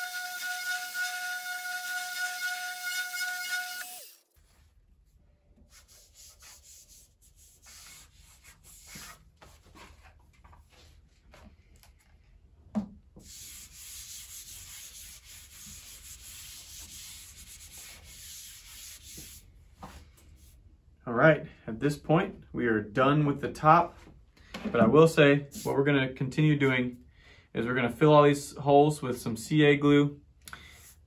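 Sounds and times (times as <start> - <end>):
hand rubbing dust off wood: 5.7 - 9.6, 13.2 - 19.4.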